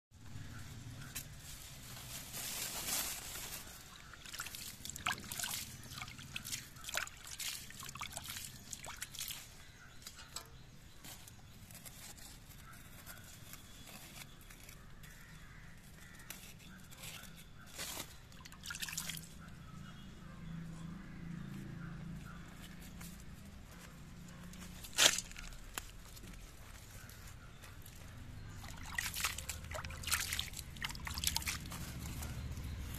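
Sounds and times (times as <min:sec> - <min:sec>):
water splashing onto soil: 0:03.9 - 0:09.5, 0:18.4 - 0:19.3, 0:28.5 - 0:31.8
water trickling and dripping: 0:04.2 - 0:09.5, 0:18.4 - 0:19.4, 0:28.5 - 0:32.1.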